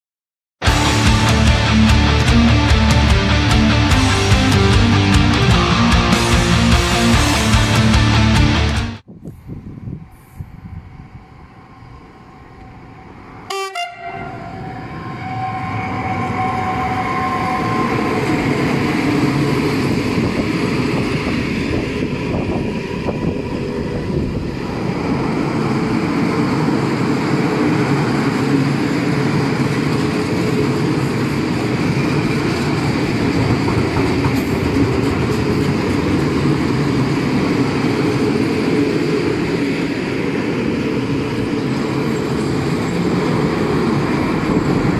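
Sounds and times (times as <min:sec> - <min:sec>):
train horn: 0:13.4 - 0:18.5
wagon wheels clattering over rails: 0:28.4 - 0:39.2.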